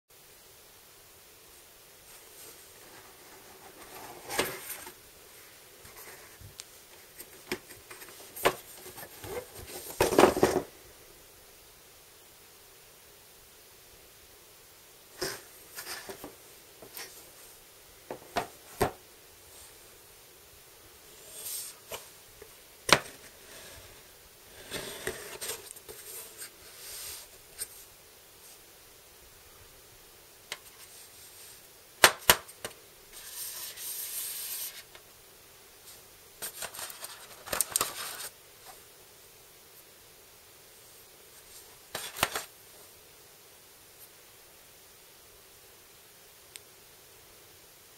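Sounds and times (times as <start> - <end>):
cardboard box and paper rustling: 2.8 - 5.0
box lid scraping: 2.9 - 5.0, 23.0 - 26.5.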